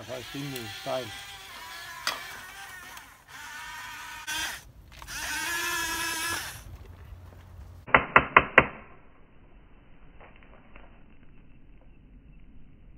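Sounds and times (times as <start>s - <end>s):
electric motors whining: 0.0s - 6.9s.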